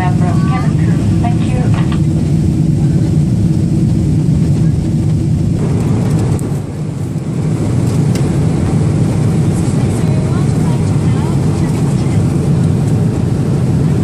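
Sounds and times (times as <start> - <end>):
airliner cabin drone: 0.0 - 14.0.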